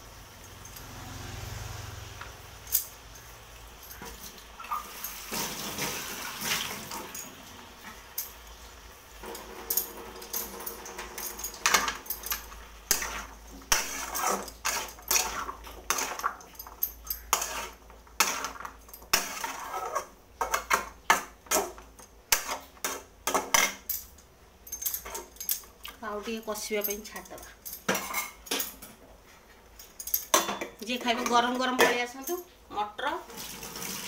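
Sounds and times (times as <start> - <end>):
dishes and utensils clattering: 9.2 - 25.8, 26.8 - 32.5.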